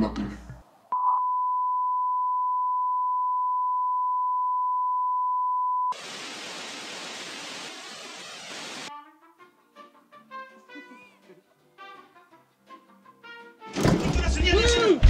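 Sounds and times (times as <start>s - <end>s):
television static hiss: 6.0s - 8.9s.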